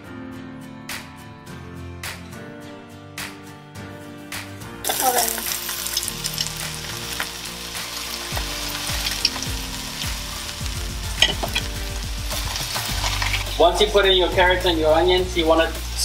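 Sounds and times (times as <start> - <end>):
vegetables sizzling in hot oil: 4.8 - 16.0.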